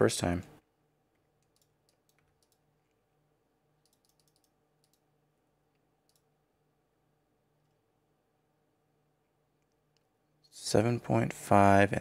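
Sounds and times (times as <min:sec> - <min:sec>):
computer mouse and keyboard clicks: 0:01.2 - 0:02.6, 0:03.8 - 0:05.0.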